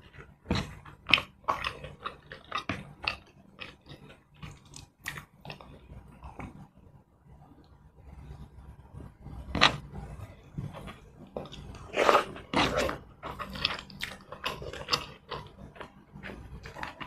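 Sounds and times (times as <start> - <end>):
chewing and mouth-smacking: 0.0 - 6.6, 10.6 - 17.0.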